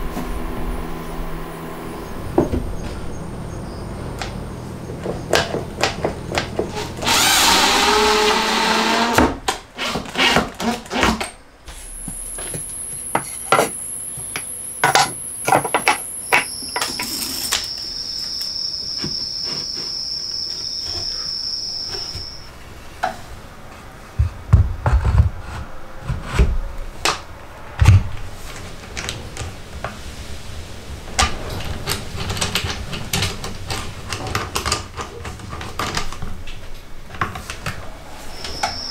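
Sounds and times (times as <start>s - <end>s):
heavy thumps: 0.0s - 7.0s
steady noise: 0.0s - 8.5s, 11.5s - 19.6s, 26.8s - 34.9s, 36.2s - 38.9s.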